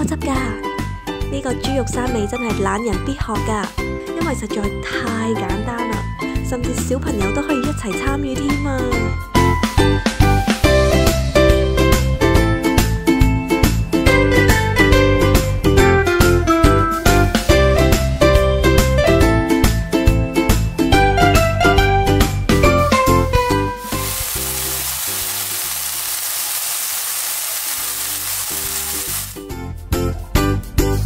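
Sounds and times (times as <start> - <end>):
patty sizzling in a pan: 23.8 - 29.4.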